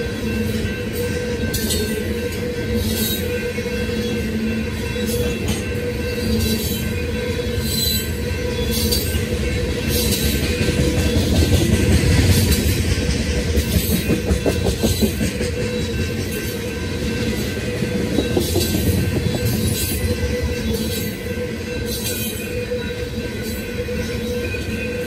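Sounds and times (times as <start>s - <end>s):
train wheels rumbling on rail: 0.0s - 25.0s
wheels clicking over rail joints: 9.8s - 16.6s.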